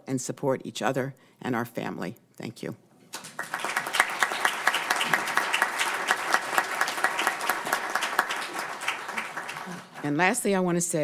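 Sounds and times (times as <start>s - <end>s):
audience applauding: 3.1s - 10.4s.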